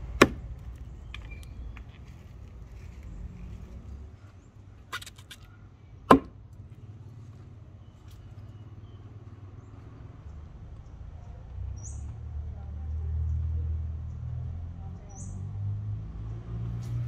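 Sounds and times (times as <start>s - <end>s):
sharp knock: 6.1s - 6.4s.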